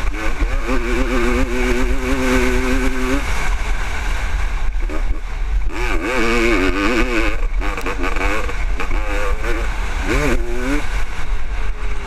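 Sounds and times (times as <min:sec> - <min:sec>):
two-stroke motorcycle engine revving: 0:00.0 - 0:12.0
wind buffeting microphone: 0:00.0 - 0:12.0.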